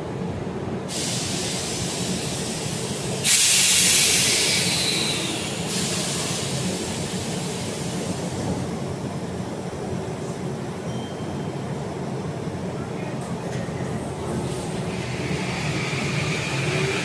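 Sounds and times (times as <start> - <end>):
train humming: 0.0 - 10.9, 11.5 - 17.0
compressed air hissing: 0.9 - 8.3.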